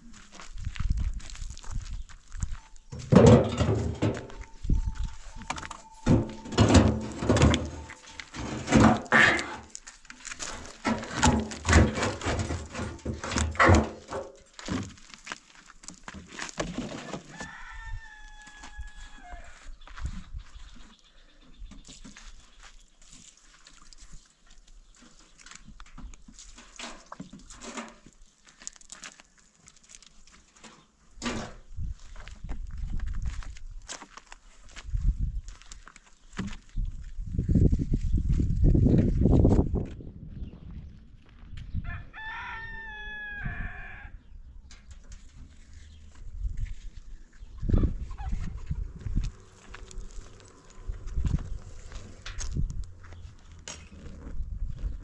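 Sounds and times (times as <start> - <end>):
wood chunks thumping in steel drum: 3.0 - 4.6, 5.5 - 9.8, 10.5 - 15.0
rooster crowing: 17.3 - 19.6, 41.8 - 44.2.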